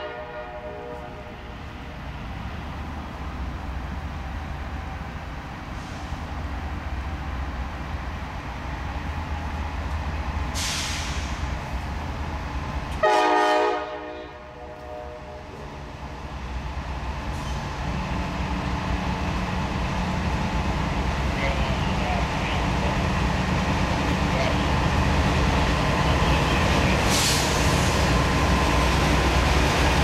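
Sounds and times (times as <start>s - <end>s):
locomotive air horn blast: 0.0s - 1.4s, 13.0s - 15.6s
diesel locomotive rumbling: 0.0s - 30.0s
brief hiss: 10.5s - 11.4s, 27.0s - 28.0s.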